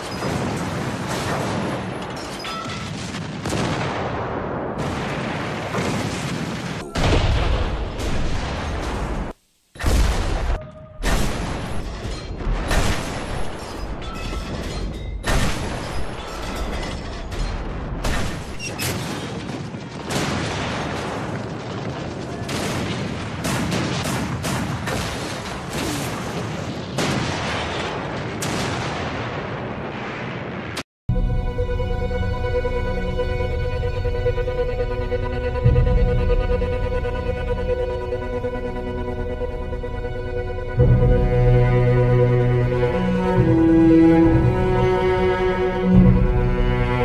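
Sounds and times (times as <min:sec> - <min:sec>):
booming explosions: 0:00.0 - 0:14.2, 0:16.8 - 0:30.8
rapid gunfire: 0:19.2 - 0:27.8.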